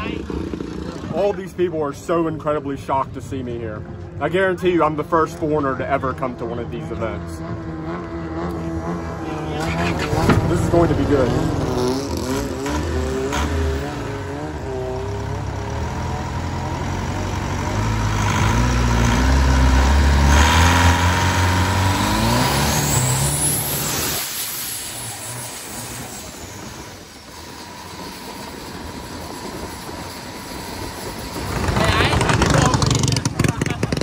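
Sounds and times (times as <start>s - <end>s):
boat engine revving: 6.2s - 34.0s
high rising whistle: 22.0s - 32.1s.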